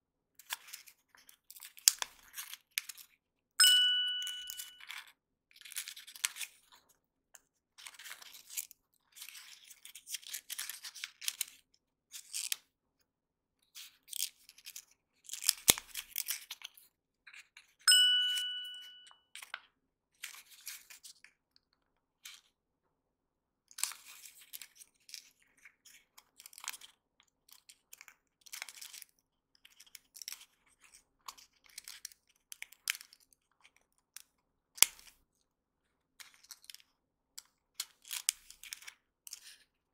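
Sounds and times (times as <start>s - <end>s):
ringing chime: 3.6s - 4.8s, 17.9s - 19.1s.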